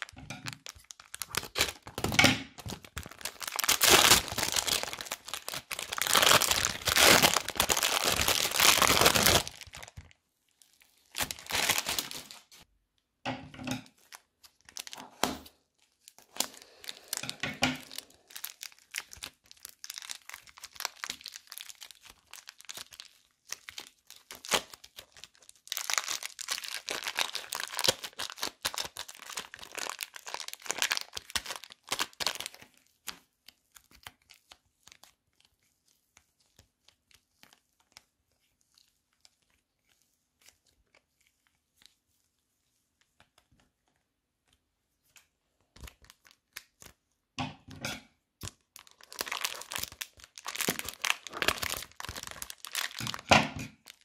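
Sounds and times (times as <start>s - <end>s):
plastic bag crinkling: 0.0s - 12.6s, 13.8s - 15.2s, 15.8s - 32.8s, 48.5s - 54.0s
foam beads crackling and popping: 0.0s - 12.7s, 13.9s - 15.0s, 15.8s - 35.4s, 48.4s - 54.0s.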